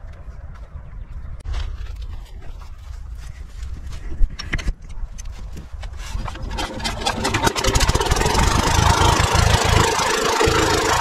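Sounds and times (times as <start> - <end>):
diesel engine starting: 6.1 - 11.0.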